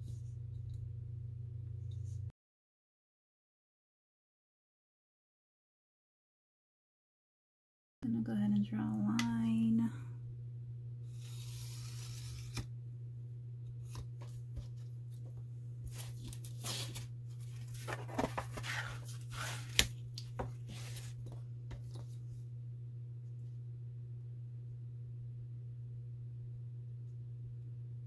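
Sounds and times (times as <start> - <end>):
low electrical hum: 0.0 - 2.3, 8.0 - 28.0
marker drawn along steel ruler: 11.1 - 12.6.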